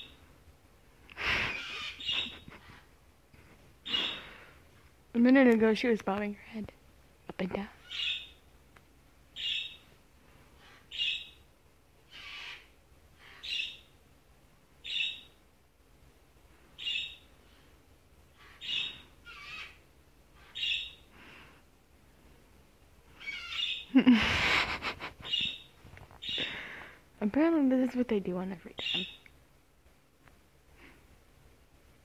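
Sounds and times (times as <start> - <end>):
cockatoo calling: 1.2 - 2.9, 3.8 - 4.4, 12.1 - 13.9, 18.3 - 21.0, 23.1 - 26.7.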